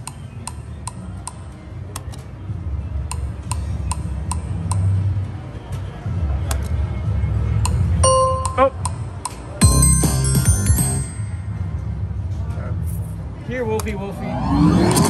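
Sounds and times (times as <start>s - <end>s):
low background music: 0.0s - 15.0s
slot machine ticking with rings: 8.0s - 11.9s.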